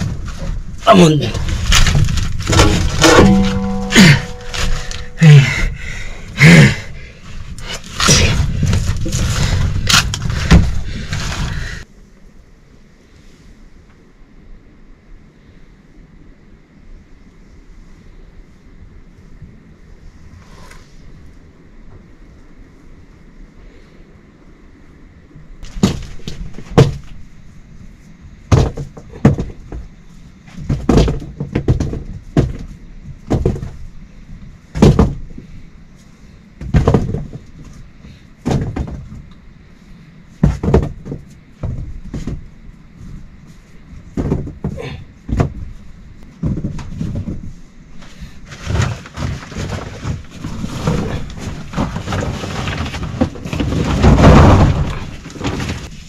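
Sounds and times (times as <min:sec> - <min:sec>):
knocks and thuds: 0:01.3 - 0:05.2, 0:08.0 - 0:11.1, 0:25.6 - 0:27.1, 0:28.5 - 0:29.9, 0:30.5 - 0:33.8, 0:34.7 - 0:35.5, 0:36.6 - 0:37.5, 0:38.4 - 0:39.2, 0:40.4 - 0:42.5, 0:44.1 - 0:45.8, 0:46.4 - 0:47.6, 0:48.5 - 0:55.9.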